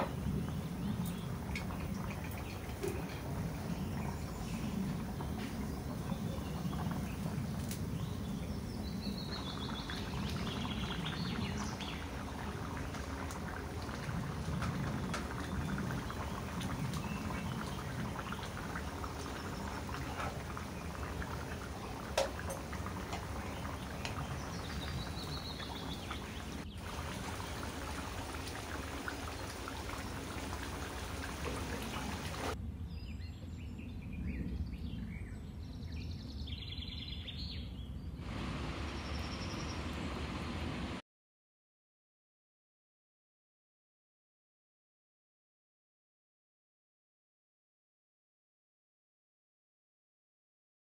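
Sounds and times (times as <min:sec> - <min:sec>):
curry bubbling and popping: 0:00.0 - 0:32.6.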